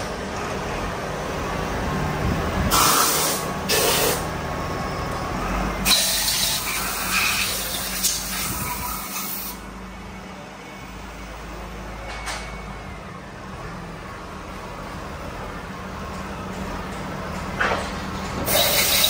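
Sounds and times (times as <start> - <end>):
loud hiss: 2.7 - 4.3, 18.5 - 19.0.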